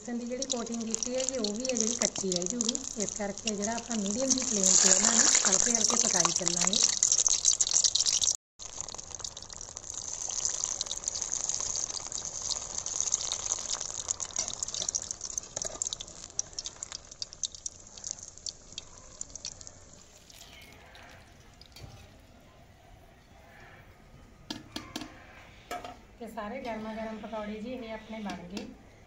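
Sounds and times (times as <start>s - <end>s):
hot oil sizzling and popping: 0.0s - 22.0s.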